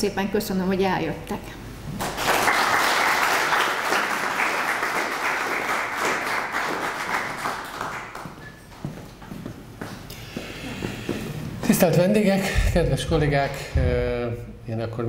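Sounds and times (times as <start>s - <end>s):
small audience applauding: 2.0s - 8.7s.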